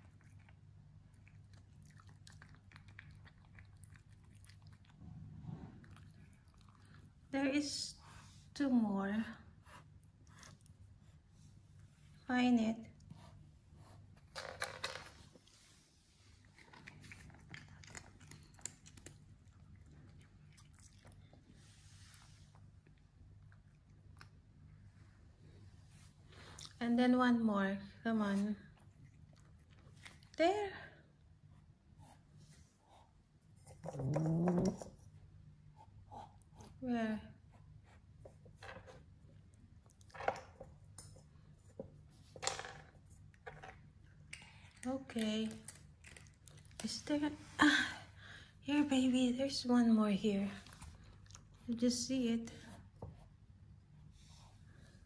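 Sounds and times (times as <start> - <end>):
low steady hum: 0.0 - 55.0
cat crunching dry treats: 16.5 - 21.2.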